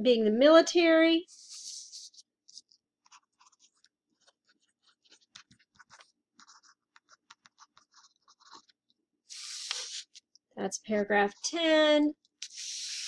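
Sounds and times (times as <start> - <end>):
pen scratching on paper: 1.3 - 10.1.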